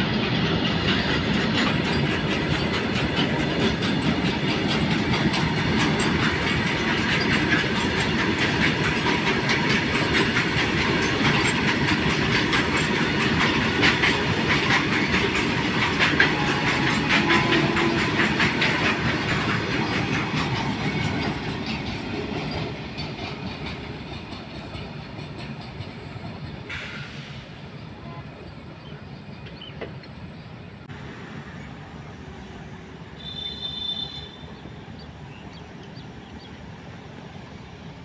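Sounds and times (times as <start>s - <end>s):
train wheels clattering on rails: 0.0s - 28.0s.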